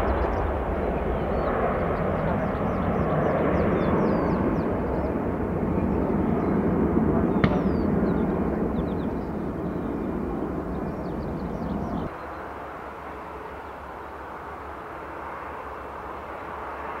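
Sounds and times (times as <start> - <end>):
small birds chirping: 0.0 - 12.6
jet engines roaring at takeoff: 0.0 - 17.0.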